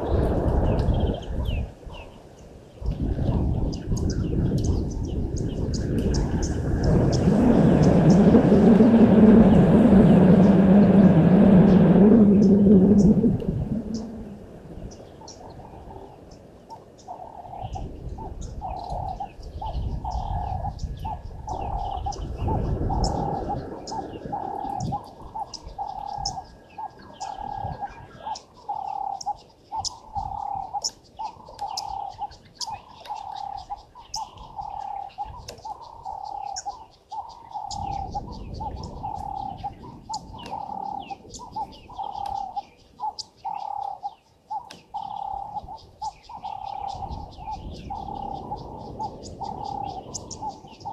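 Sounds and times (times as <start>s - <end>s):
low rumble: 5.1s - 14.9s
bird hooting: 6.2s - 50.9s.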